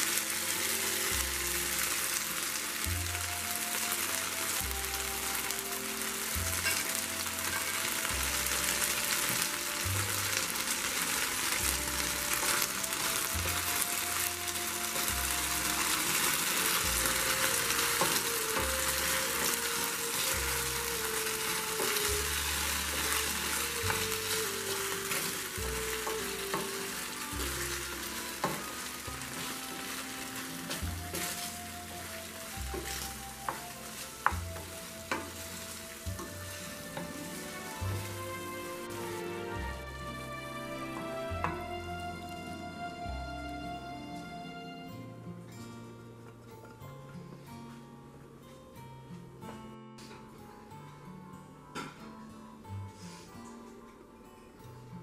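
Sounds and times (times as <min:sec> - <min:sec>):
food sizzling in a frying pan: 0:00.0 - 0:43.6
soft background music: 0:00.0 - 0:55.0
spatula stirring in pan: 0:10.3 - 0:38.3.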